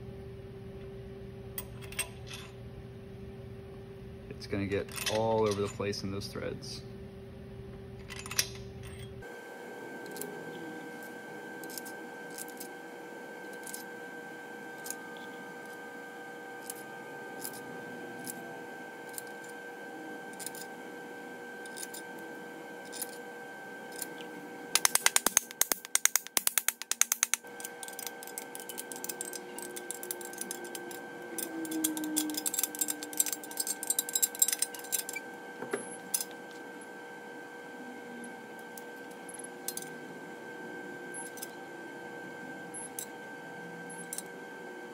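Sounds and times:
steady shop hum: 0:00.0 - 0:44.9
hand ratchet clicking: 0:24.8 - 0:35.2.

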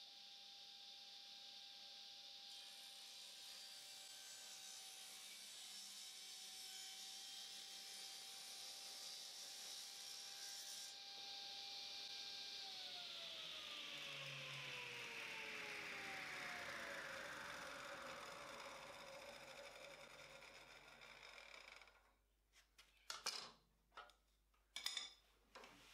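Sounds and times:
table saw cutting wood: 0:00.2 - 0:21.9
saw blade winding down: 0:10.8 - 0:22.0.

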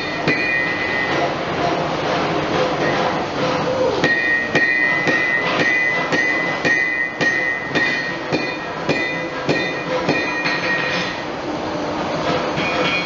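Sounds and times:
hammer striking horseshoe nails: 0:04.1 - 0:10.7.

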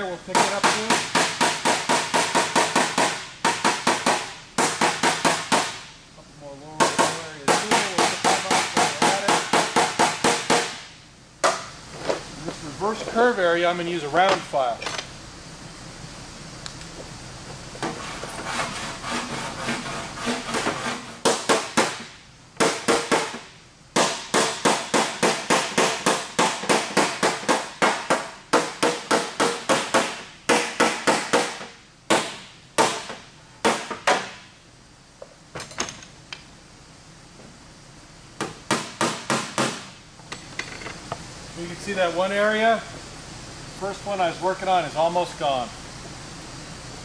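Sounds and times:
file rasping over metal: 0:17.9 - 0:21.2.

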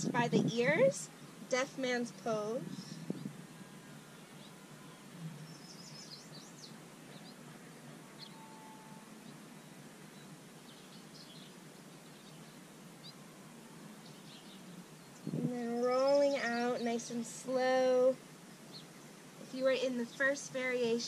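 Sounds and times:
faint steady hiss: 0:00.0 - 0:21.0
small birds chirping: 0:00.3 - 0:21.0.

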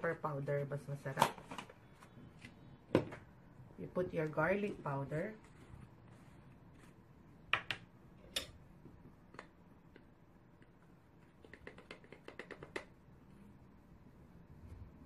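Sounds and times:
light taps of powder shaking: 0:10.6 - 0:13.0.

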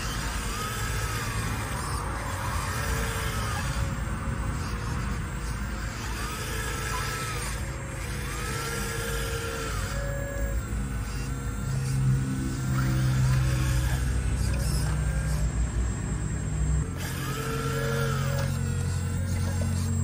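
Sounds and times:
hydraulic pump hum: 0:00.0 - 0:20.0
hydraulic whine rising and falling: 0:00.0 - 0:20.0.

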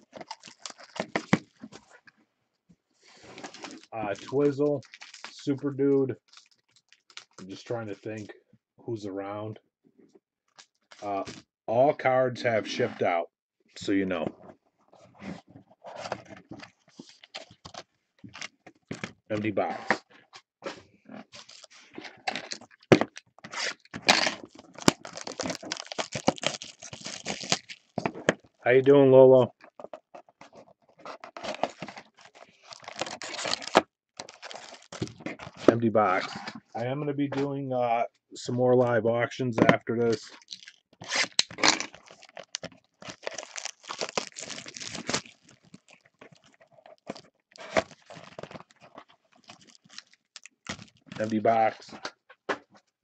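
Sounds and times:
foil wrapper crinkling: 0:00.0 - 0:01.8, 0:03.4 - 0:05.4, 0:06.2 - 0:07.4, 0:22.3 - 0:28.1, 0:31.2 - 0:35.6, 0:40.4 - 0:51.6.

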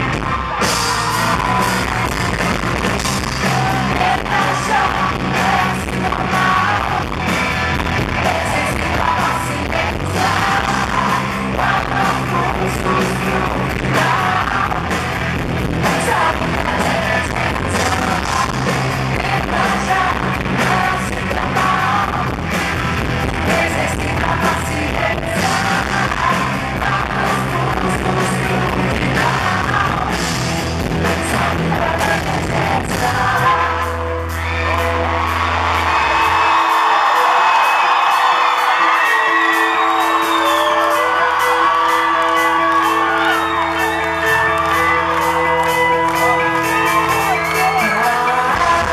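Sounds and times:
steady drumbeat: 0:00.0 - 0:33.0
live rock band: 0:00.0 - 0:48.9
woman singing: 0:23.4 - 0:30.2.

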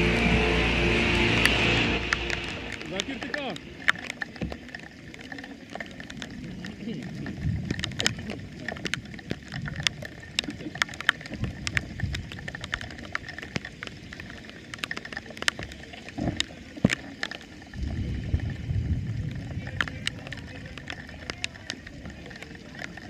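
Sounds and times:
low rumbles: 0:00.0 - 0:04.9
rain falling: 0:00.0 - 0:23.0
raindrops tapping the microphone: 0:00.0 - 0:23.0.

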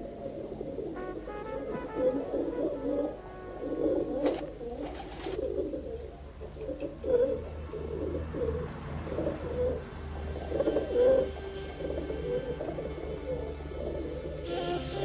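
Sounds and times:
low steady hum: 0:00.0 - 0:15.0
pigeons cooing: 0:00.0 - 0:15.0.

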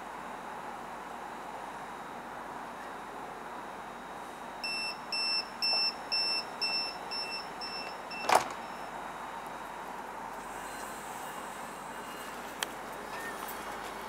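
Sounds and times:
high electronic warning beeps: 0:04.6 - 0:08.9.

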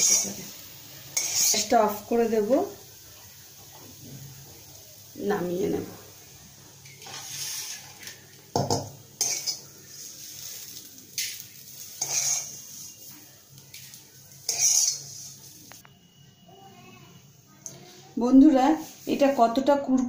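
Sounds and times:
plastic spatula scraping a wok: 0:07.0 - 0:08.0, 0:11.9 - 0:13.1, 0:14.5 - 0:15.5.

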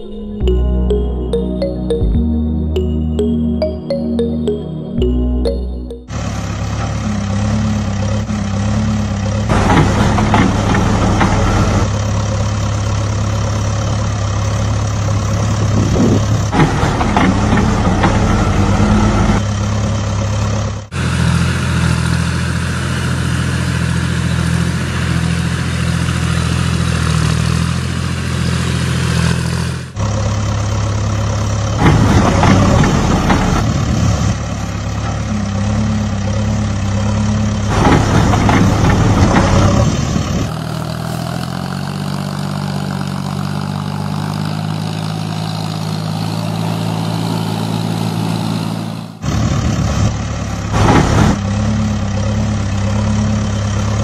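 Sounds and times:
rough engine bursts: 0:06.1 - 0:12.3, 0:29.4 - 0:43.2
engine idling: 0:06.1 - 0:27.1, 0:29.4 - 0:46.6.

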